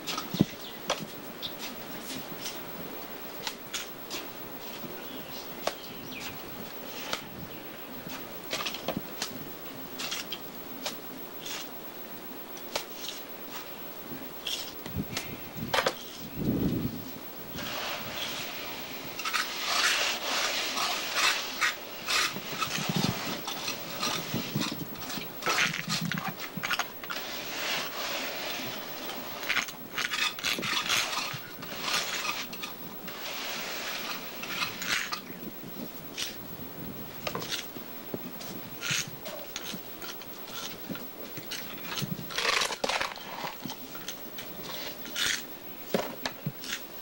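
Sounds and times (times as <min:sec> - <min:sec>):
steady hiss: 0:00.0 - 0:47.0
trowel scraping wet plaster: 0:17.6 - 0:35.3.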